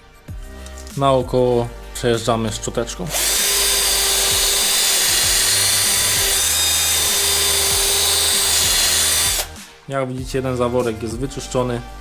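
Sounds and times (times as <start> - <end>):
drill wire brush scraping metal: 3.1 - 9.5.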